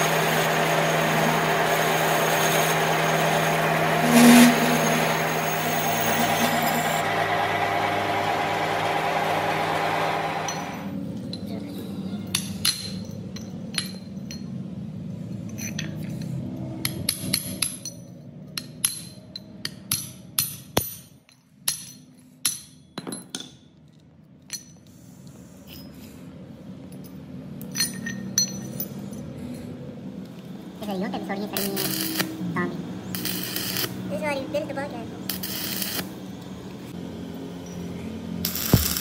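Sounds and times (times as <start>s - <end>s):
metal tools clinking: 15.3s - 16.5s, 26.8s - 29.5s.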